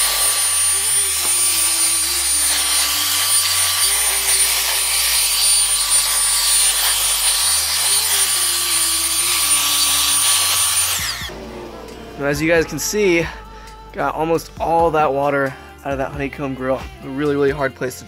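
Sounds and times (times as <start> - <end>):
leaf blower running: 0.0 - 12.4.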